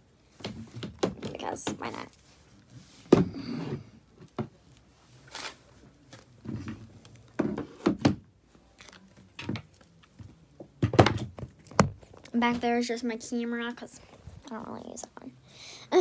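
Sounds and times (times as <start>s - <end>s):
objects thumping and knocking: 3.1s - 4.6s, 6.4s - 8.3s, 9.4s - 12.1s.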